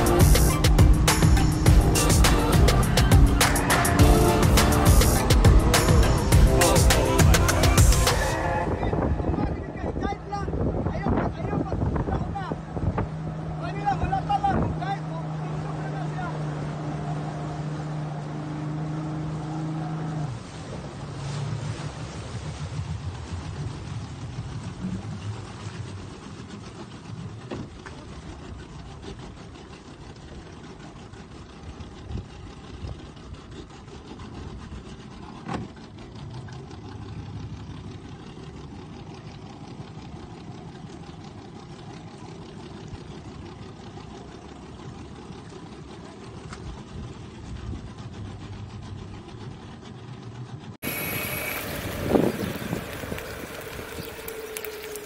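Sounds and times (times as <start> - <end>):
boat wake washing: 0.0 - 55.0
motorboat engine running: 0.0 - 55.0
wind: 0.0 - 55.0.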